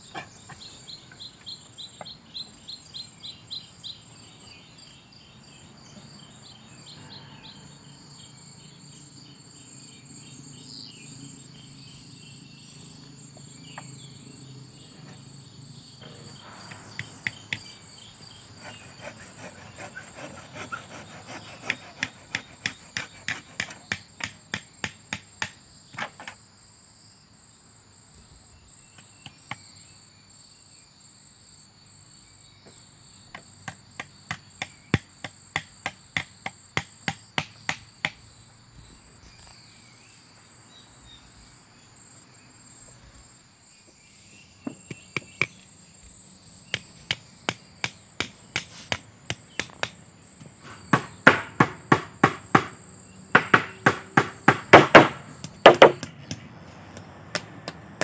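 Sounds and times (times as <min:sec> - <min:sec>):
high drone of insects: 0:00.0 - 0:58.0
hammer knocking on wooden frame: 0:50.9 - 0:56.1.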